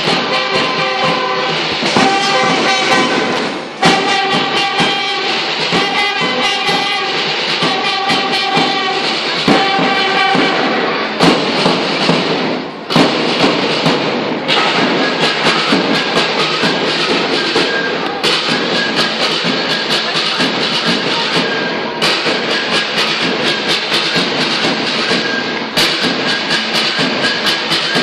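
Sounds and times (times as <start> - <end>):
marching band wind instruments: 0.0 - 28.0
sharp drum beats: 0.0 - 28.0.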